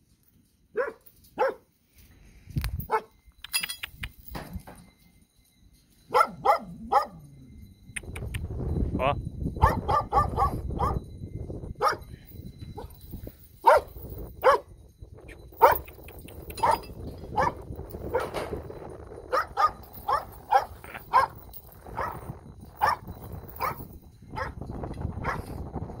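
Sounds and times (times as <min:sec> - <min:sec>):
dog barking: 0:00.8 - 0:01.7, 0:02.9 - 0:03.1, 0:06.1 - 0:07.2, 0:09.6 - 0:11.0, 0:11.8 - 0:12.1, 0:13.6 - 0:14.7, 0:15.6 - 0:15.9, 0:16.6 - 0:16.8, 0:17.4 - 0:18.3, 0:19.3 - 0:21.4, 0:22.0 - 0:22.2, 0:22.8 - 0:23.0, 0:24.4 - 0:24.6, 0:25.2 - 0:25.4.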